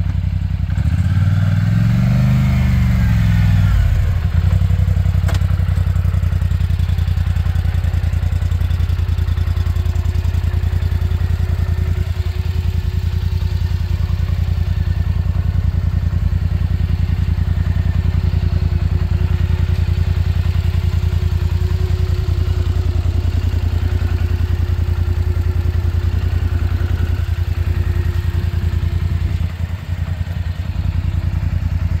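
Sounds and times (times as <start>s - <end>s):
atv engine idling: 0.0s - 32.0s.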